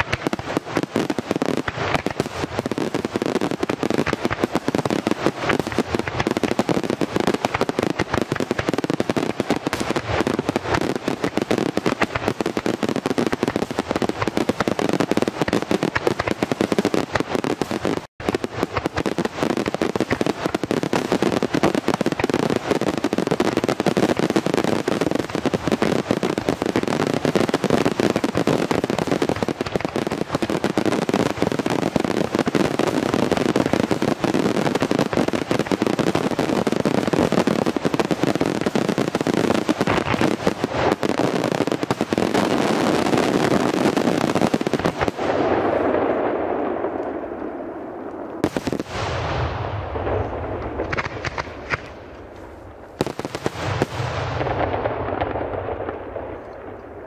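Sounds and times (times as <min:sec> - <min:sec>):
fireworks bangs: 0:00.0 - 0:57.0.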